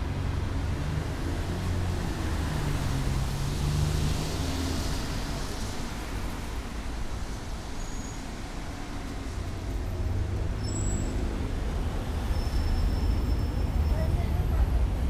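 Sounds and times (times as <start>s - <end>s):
road vehicle engine rumble: 0.0s - 15.0s.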